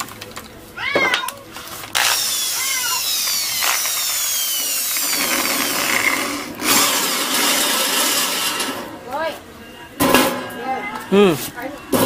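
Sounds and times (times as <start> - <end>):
electric drill whining through metal: 1.6 - 8.8.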